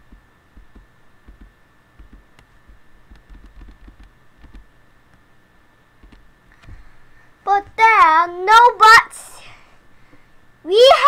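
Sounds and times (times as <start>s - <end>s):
microphone handling thumps: 0.0s - 4.7s.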